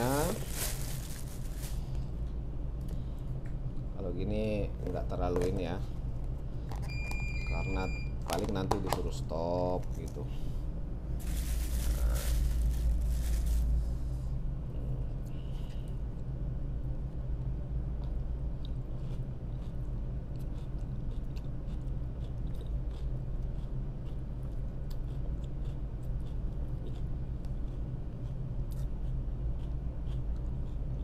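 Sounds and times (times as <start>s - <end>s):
person chewing: 18.0s - 31.0s.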